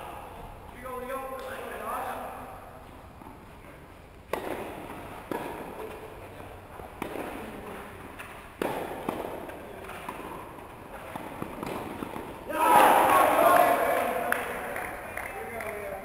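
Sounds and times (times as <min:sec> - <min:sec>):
tennis ball struck by rackets: 0:04.3 - 0:12.5.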